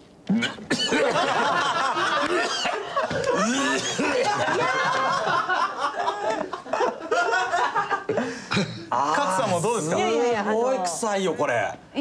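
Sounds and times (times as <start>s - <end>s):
people laughing and exclaiming: 1.0s - 8.1s.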